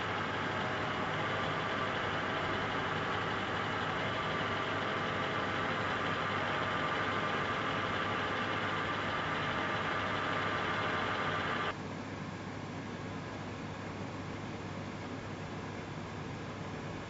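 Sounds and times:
faint high whine: 0.0 - 11.7
mechanical hum: 0.0 - 17.0.

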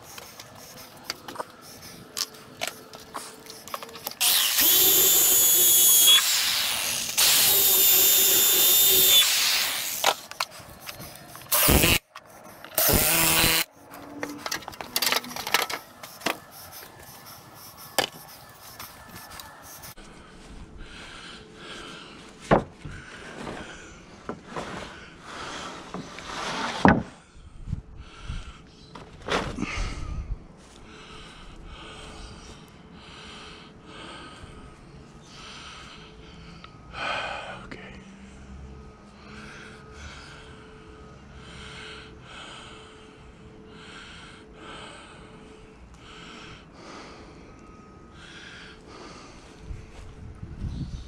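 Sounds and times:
cordless drill whining into wood: 4.0 - 12.1, 12.7 - 13.7.

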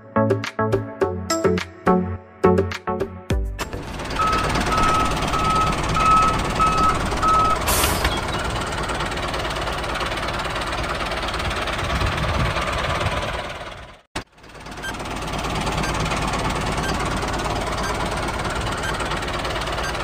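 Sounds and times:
tractor engine running: 3.6 - 20.0
reversing alarm beeps: 4.1 - 7.7.

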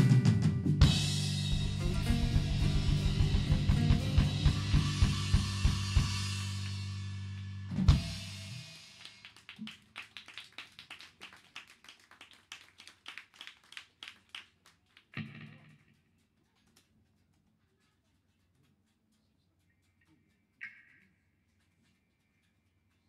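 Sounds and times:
live rock band playing: 0.0 - 8.5
loud final drum hit: 0.0 - 8.8.

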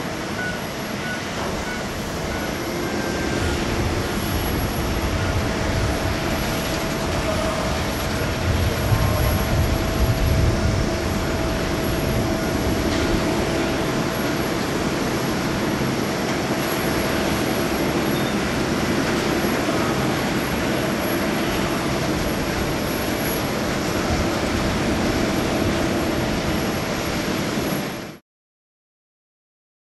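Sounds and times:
jet engines humming with whine: 0.0 - 28.2.

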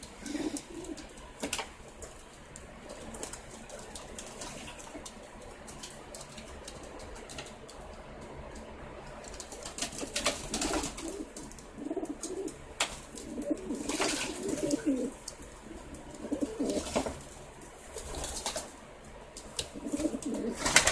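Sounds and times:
pigeons cooing: 0.0 - 1.4, 10.0 - 17.2, 19.6 - 20.9
wings flapping: 0.0 - 7.9, 9.1 - 20.9.

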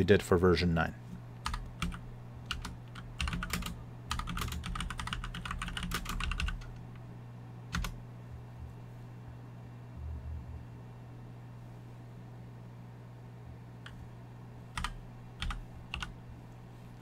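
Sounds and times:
typing on a keyboard: 1.4 - 6.8, 7.7 - 8.0, 14.8 - 16.1.

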